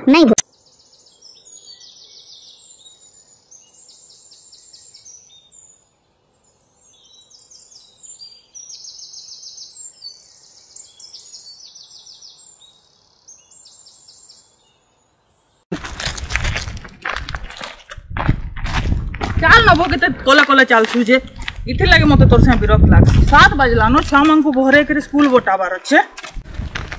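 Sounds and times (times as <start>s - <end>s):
birds singing rapid trills: 0.4s - 15.6s.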